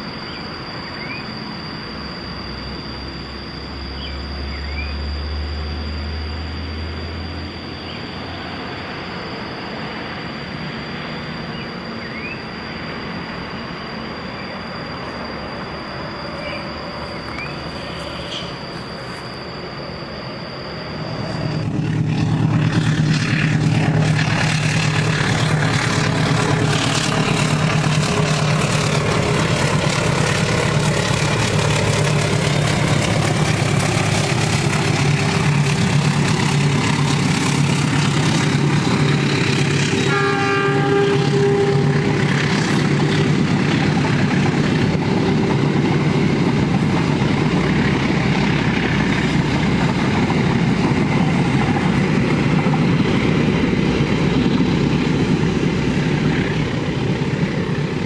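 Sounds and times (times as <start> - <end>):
locomotive engine rumble: 0.0 - 58.0
steady high hum: 0.0 - 58.0
train coaches running on track: 0.0 - 58.0
short high tones: 11.0 - 38.2.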